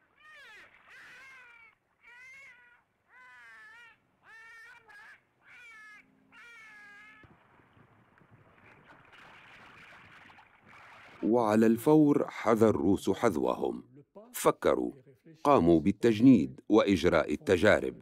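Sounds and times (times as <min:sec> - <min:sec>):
faint water splashing: 0:00.0 - 0:02.8, 0:07.2 - 0:12.1.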